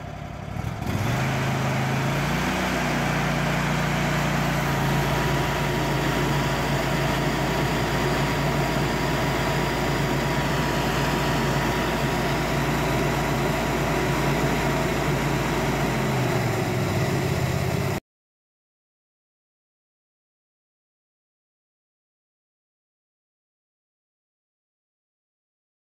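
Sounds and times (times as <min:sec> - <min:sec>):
petrol engine running: 0:00.0 - 0:18.0.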